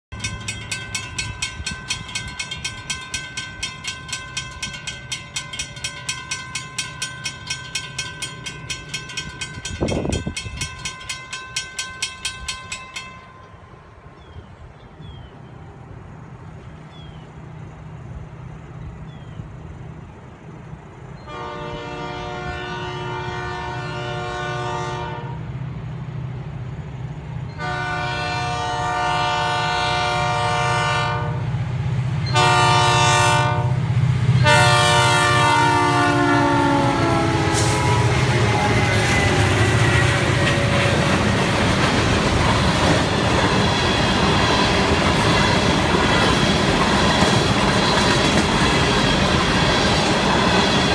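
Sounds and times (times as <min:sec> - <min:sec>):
train wheel clatter: 0:00.1 - 0:14.4, 0:34.4 - 0:50.9
locomotive engine rumble: 0:00.1 - 0:50.9
train air horn blasts: 0:21.3 - 0:25.6, 0:27.6 - 0:31.6, 0:32.3 - 0:41.3.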